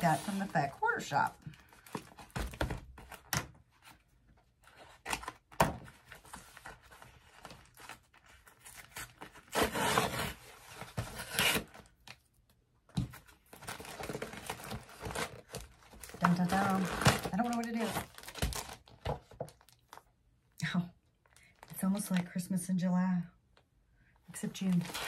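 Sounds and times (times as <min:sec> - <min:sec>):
envelope tearing and crinkling: 0:13.5 - 0:20.0, 0:24.6 - 0:25.0.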